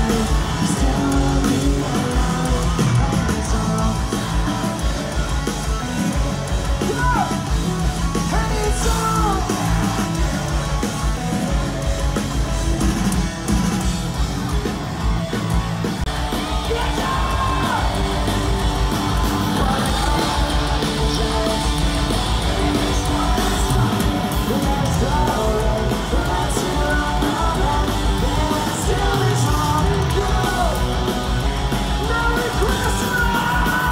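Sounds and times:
person singing: 0:00.0 - 0:06.1, 0:19.2 - 0:33.9
drums: 0:00.0 - 0:33.9
electric guitar: 0:00.0 - 0:33.9.

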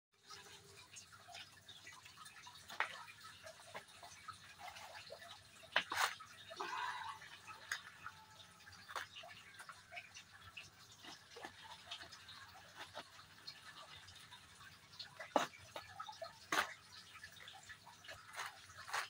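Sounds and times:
potting soil rustling: 0:18.0 - 0:19.0.

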